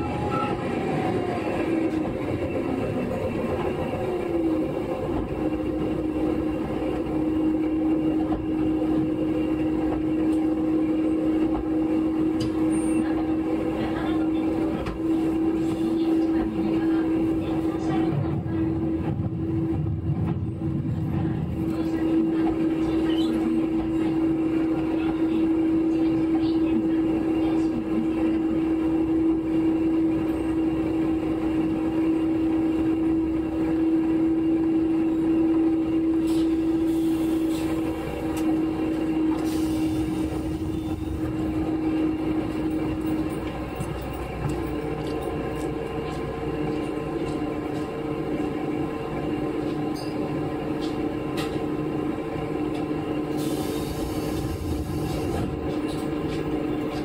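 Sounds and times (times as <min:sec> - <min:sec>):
diesel railcar engine whine: 0:00.0 - 0:57.0.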